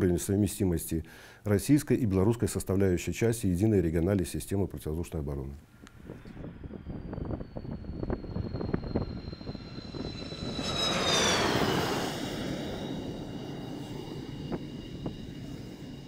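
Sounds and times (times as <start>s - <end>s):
jet engine turbine whine: 5.7s - 16.0s.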